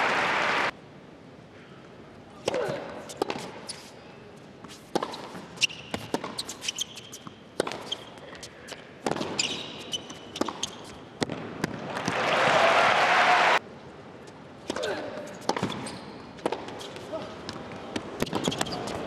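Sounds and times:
rackets hitting tennis ball: 2.4 - 3.9, 4.7 - 12.2, 14.7 - 19.0
shoes squeaking on court: 2.4 - 11.4, 15.2 - 19.0.

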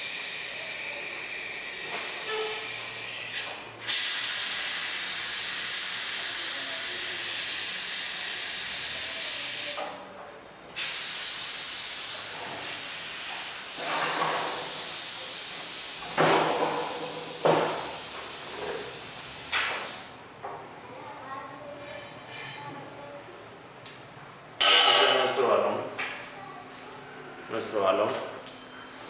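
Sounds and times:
compressed air hissing: 2.1 - 9.8, 10.8 - 20.2.

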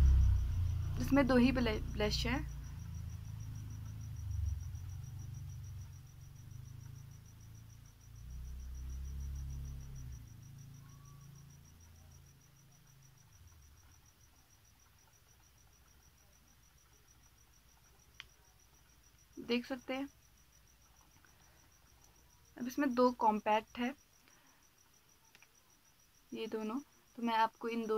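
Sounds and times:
low rumble: 0.0 - 6.9
cricket chirping: 0.0 - 27.9.

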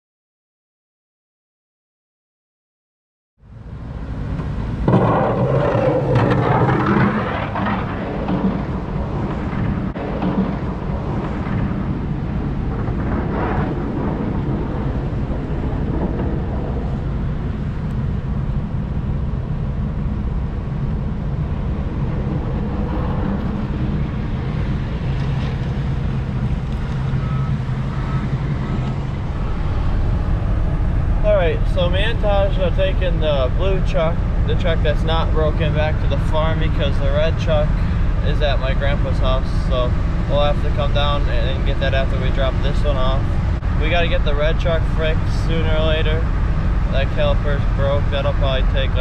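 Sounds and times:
pickup truck engine running: 13.8 - 49.0.

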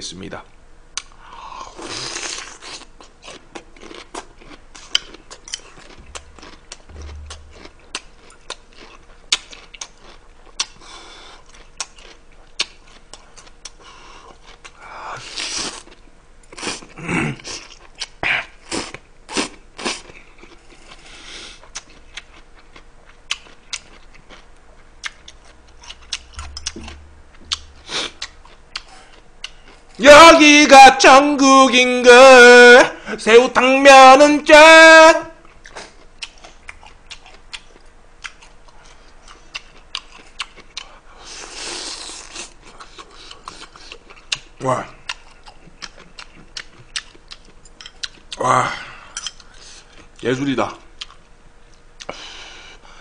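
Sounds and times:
crunching and chewing: 1.0 - 30.0, 35.4 - 48.4, 50.8 - 52.2.

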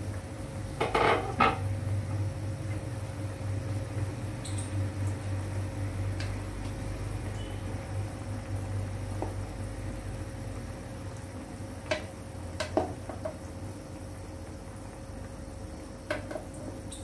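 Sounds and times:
wooden spoon knocking pot: 11.9 - 13.4.

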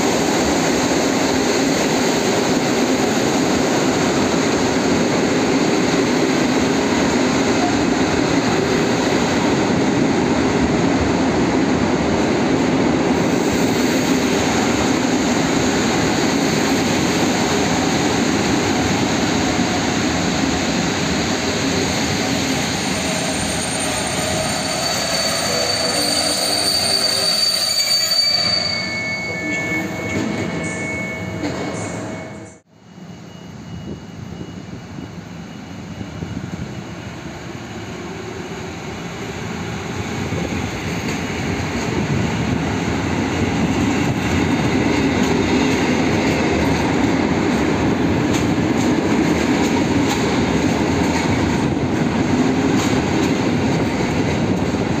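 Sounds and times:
train brakes squealing: 21.3 - 38.6
train wheels rumbling on rails: 33.3 - 55.0.

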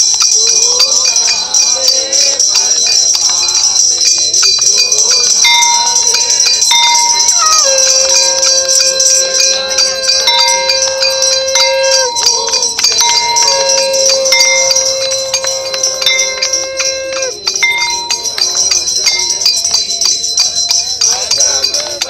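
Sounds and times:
hand bells ringing and jingling: 0.0 - 22.0
devotional tune in long notes: 5.7 - 18.6.

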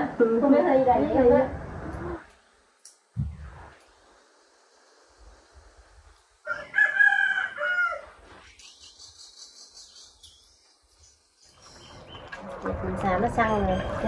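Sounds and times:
rooster crowing: 6.4 - 8.3.

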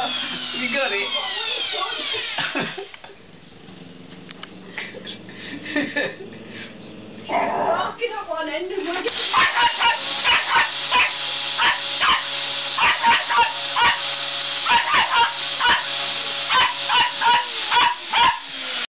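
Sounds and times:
vacuum cleaner whining: 0.0 - 7.4, 8.7 - 18.9
dog barking sharply: 9.3 - 18.5.

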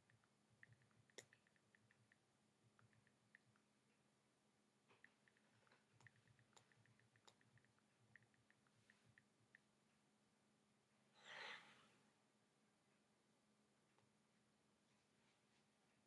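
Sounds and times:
faint clicks: 0.0 - 4.1, 4.8 - 9.7
soft exhale: 11.1 - 12.1.

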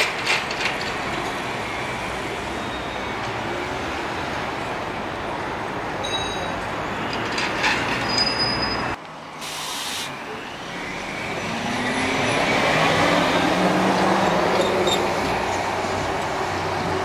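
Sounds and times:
trolleybus rumble: 0.0 - 17.0.

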